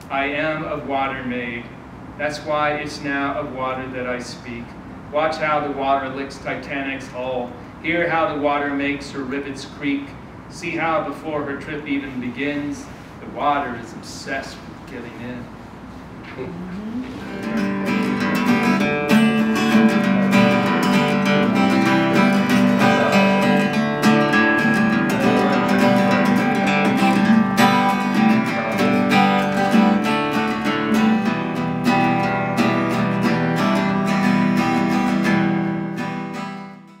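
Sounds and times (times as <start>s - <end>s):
acoustic guitar strumming: 16.4s - 37.0s.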